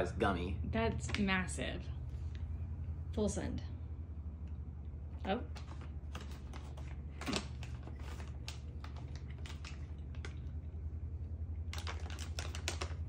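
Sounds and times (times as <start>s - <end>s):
steady low hum: 0.0s - 13.0s
plastic bag crinkling: 5.5s - 10.6s, 11.6s - 13.0s.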